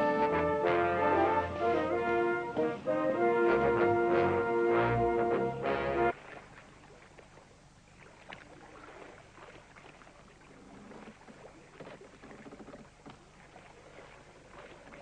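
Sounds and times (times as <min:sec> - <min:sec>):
low steady hum: 0:00.0 - 0:15.0
water lapping against hull: 0:00.0 - 0:15.0
small splashes: 0:06.0 - 0:15.0.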